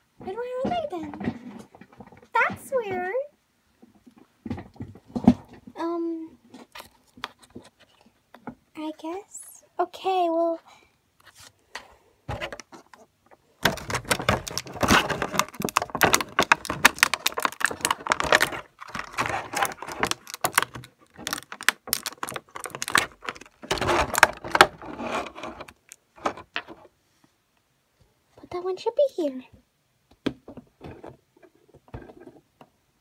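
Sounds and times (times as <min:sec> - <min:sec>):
plastic packaging crackling: 0:13.6 - 0:26.5.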